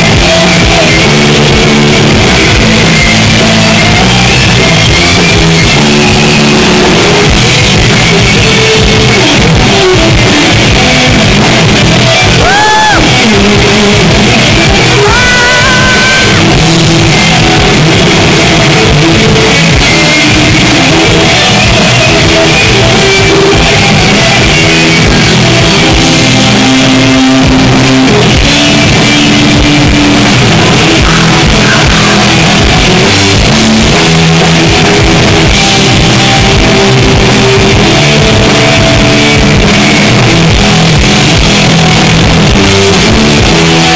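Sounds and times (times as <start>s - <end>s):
electric guitar: 0.0s - 43.9s
rock band playing live: 0.0s - 43.9s
shouted vocals: 12.4s - 13.3s, 14.8s - 16.6s.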